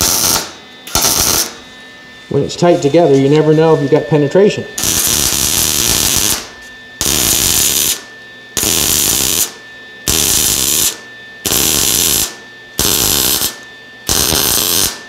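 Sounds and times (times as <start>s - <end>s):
welder arc crackling: 0.0s - 1.6s, 4.8s - 15.0s.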